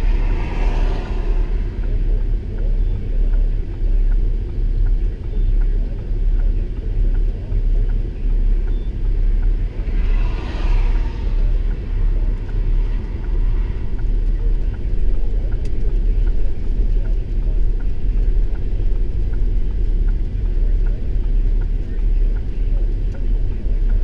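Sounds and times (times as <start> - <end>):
car passing with hiss: 0.0 - 1.8, 9.6 - 14.0
low rumble inside vehicle: 0.0 - 24.0.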